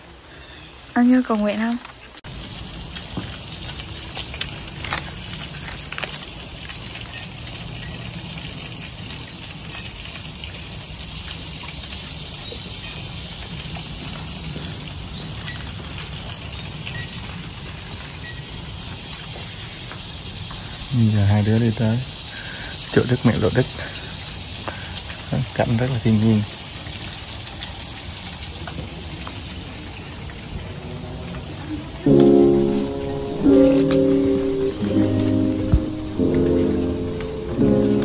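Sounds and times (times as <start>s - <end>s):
even hiss: 20.0s - 26.4s, 32.0s - 38.0s.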